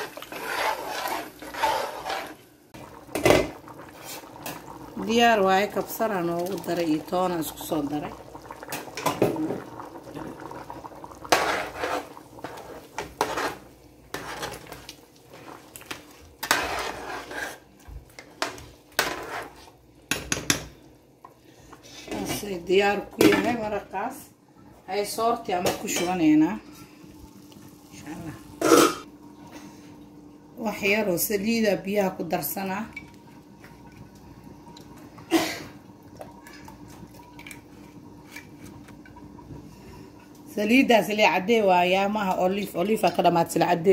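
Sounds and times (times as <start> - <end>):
ladle scraping and clanking in pot: 0.0 - 2.5, 11.2 - 20.6
metal spatula stirring water: 0.0 - 2.5, 11.2 - 17.7.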